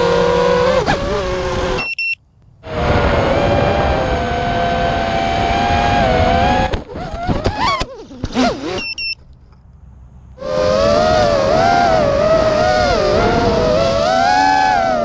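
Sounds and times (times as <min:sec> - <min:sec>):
short high beeps: 0:01.8 - 0:02.2, 0:08.8 - 0:09.2
quadcopter motors whining: 0:10.4 - 0:15.0.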